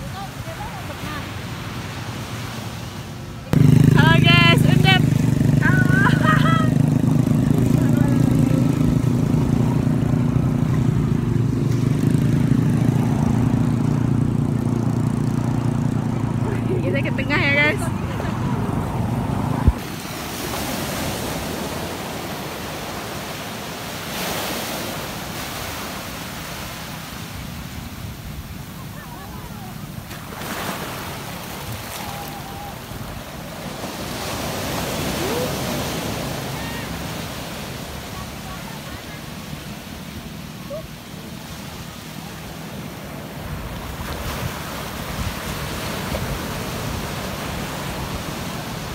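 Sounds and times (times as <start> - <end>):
sea waves washing over sand: 0.0 - 48.9
wind buffeting microphone: 16.1 - 19.9
surf breaking on beach: 19.6 - 48.9.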